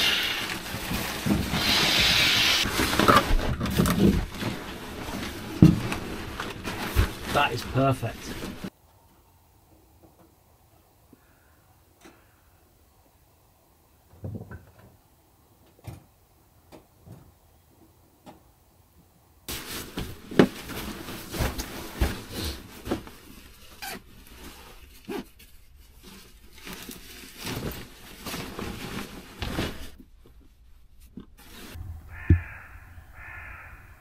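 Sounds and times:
rustling and crinkling of bedding: 0.0s - 8.7s, 19.5s - 33.7s.

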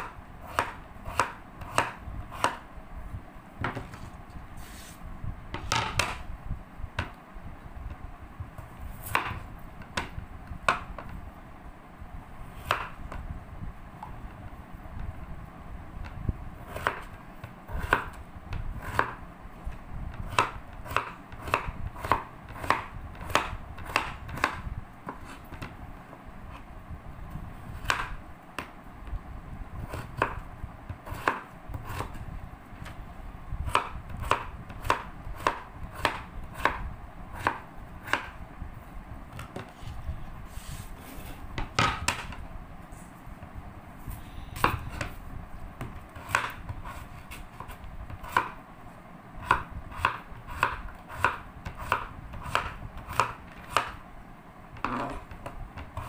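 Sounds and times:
knife chopping on cutting board: 0.5s - 2.6s, 9.0s - 9.4s, 16.7s - 17.1s, 18.8s - 19.2s, 20.3s - 25.7s, 27.8s - 28.7s, 29.9s - 30.4s, 31.0s - 32.2s, 33.7s - 36.8s, 37.4s - 38.3s, 45.8s - 48.6s, 49.5s - 54.0s.

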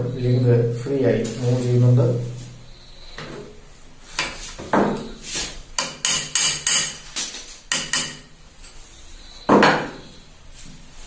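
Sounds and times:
hammer striking metal: 5.8s - 7.0s, 7.7s - 8.3s.

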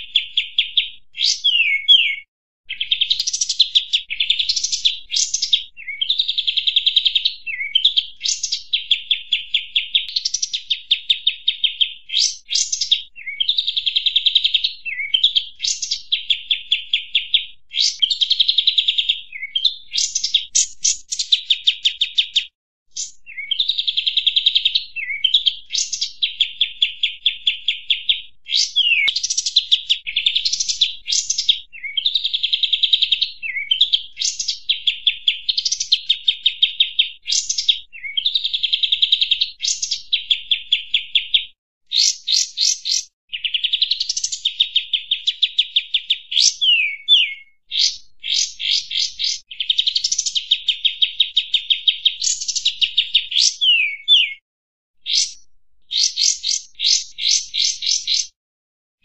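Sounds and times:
bird chirps and trills: 0.0s - 54.4s, 55.0s - 58.4s.

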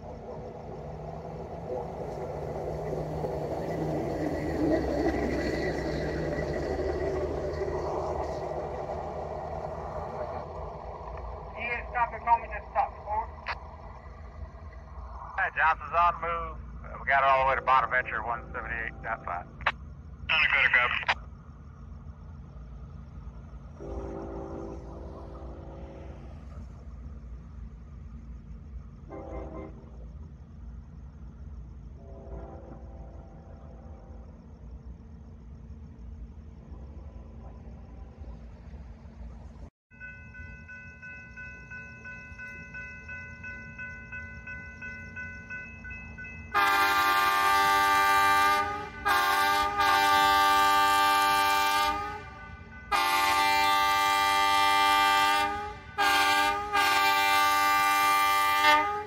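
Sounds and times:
low rumble: 0.0s - 20.3s
rail vehicle engine approaching: 0.0s - 59.0s
distant train horn blast: 23.8s - 26.4s, 29.0s - 29.9s, 32.0s - 33.8s, 46.5s - 59.0s.

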